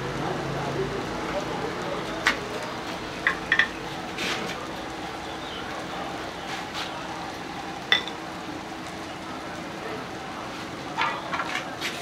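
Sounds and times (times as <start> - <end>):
steady background noise: 0.0 - 12.0
metal kitchenware clinking: 7.9 - 8.2.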